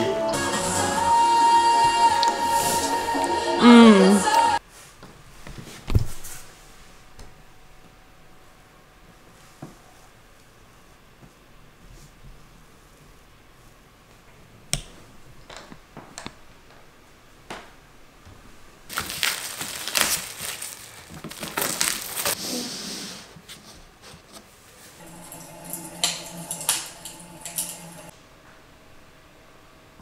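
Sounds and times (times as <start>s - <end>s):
plastic packaging crinkling: 18.9s - 22.4s
low steady hum: 25.0s - 30.0s.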